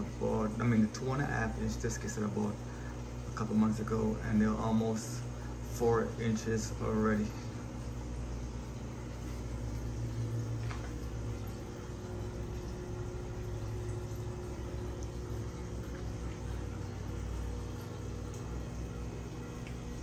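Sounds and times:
aquarium equipment hum: 0.0 - 20.0
filter bubbling: 0.0 - 20.0.

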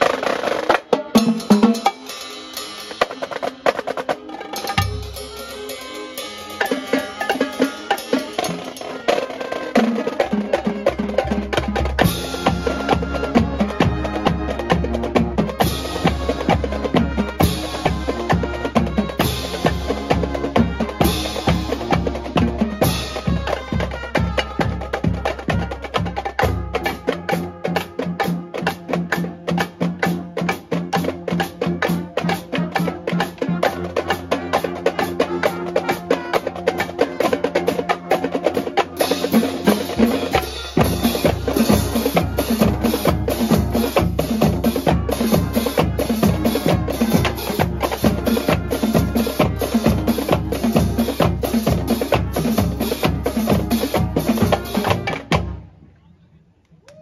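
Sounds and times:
marching band playing: 0.0 - 55.8
steady bass drum beat: 39.0 - 55.5.

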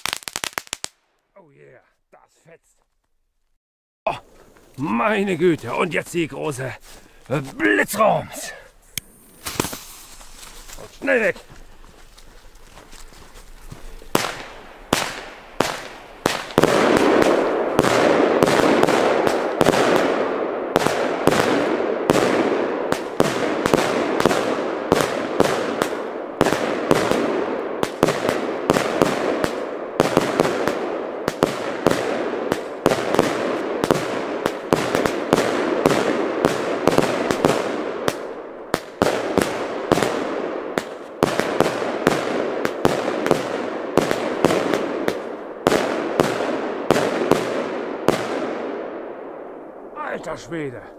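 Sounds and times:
firework pops: 0.0 - 1.0, 9.0 - 10.9
fireworks launching and bursting: 0.0 - 1.2, 7.3 - 11.3, 14.0 - 49.4.

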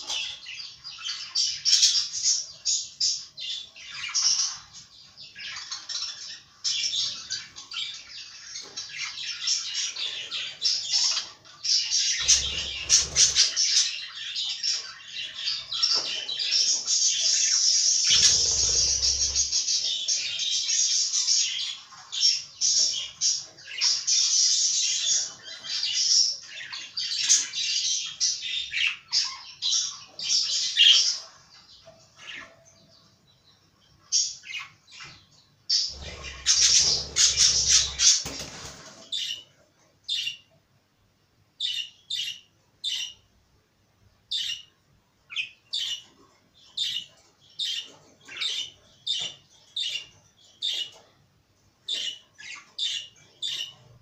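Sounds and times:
budgerigars chattering and warbling: 5.3 - 31.4, 35.7 - 39.5, 45.3 - 51.0, 51.9 - 54.0.

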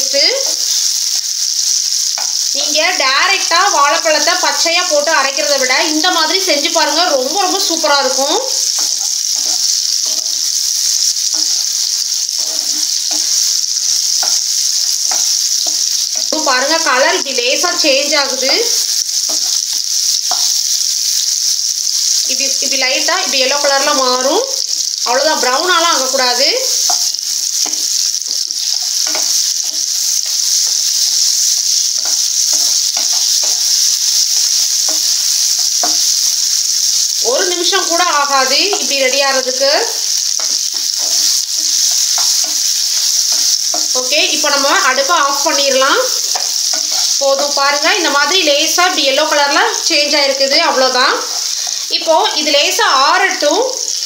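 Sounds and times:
banana slices sizzling in pan: 0.0 - 54.0
spatula scraping and knocking pan: 7.2 - 16.8, 17.8 - 20.8, 25.4 - 48.4.

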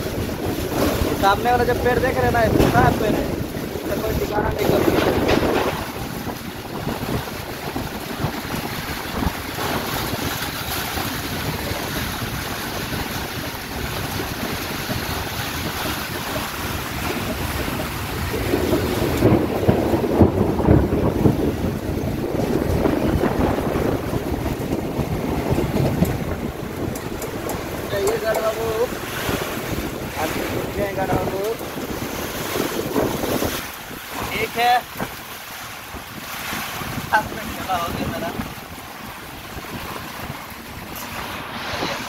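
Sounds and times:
rain: 0.0 - 42.0
wind buffeting microphone: 0.0 - 42.0.

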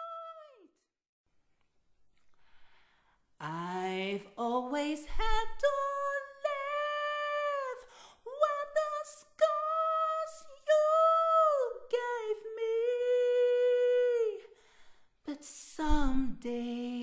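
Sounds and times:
solo voice singing: 15.3 - 17.0.

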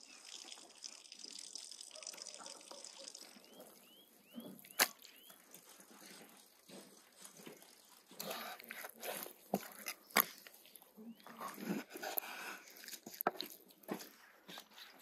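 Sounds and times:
wet squelches and drips: 0.0 - 15.0
faint bird chirps: 2.0 - 5.4.

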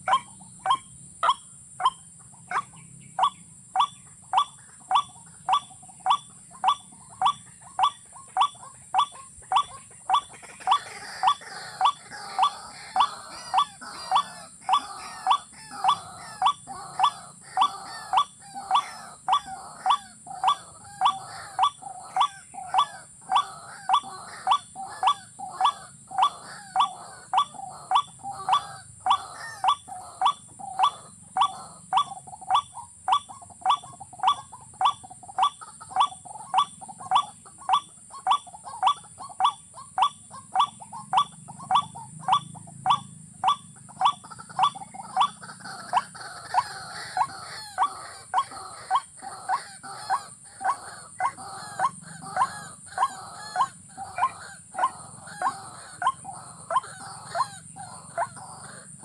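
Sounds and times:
bird calling sharp rising notes: 38.3 - 59.0.

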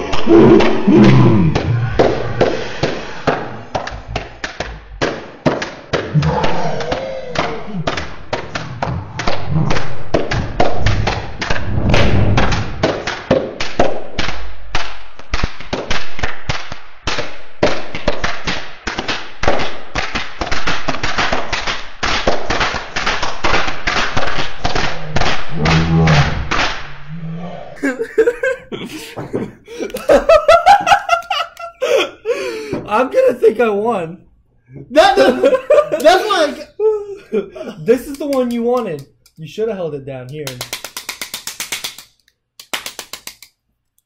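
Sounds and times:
rapid hand clapping: 12.4 - 25.9, 27.8 - 32.8, 35.1 - 36.6, 37.6 - 39.4, 40.2 - 43.6
plastic hand clappers clacking: 38.0 - 39.4, 40.3 - 43.6.

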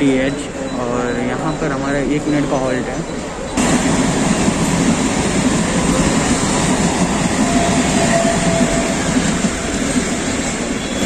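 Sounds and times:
train wheels rumbling: 3.5 - 11.0.

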